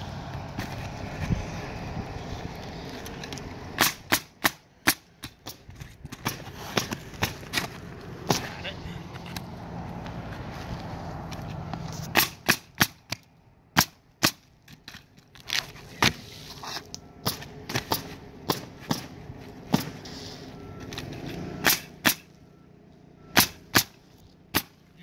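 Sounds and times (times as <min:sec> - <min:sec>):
nail gun shots: 0:03.8 - 0:05.0, 0:21.6 - 0:22.3, 0:23.3 - 0:24.8.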